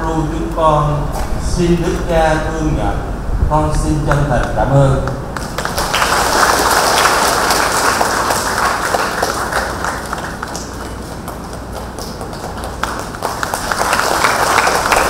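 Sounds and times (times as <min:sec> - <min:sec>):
crowd clapping: 0:04.1 - 0:15.0.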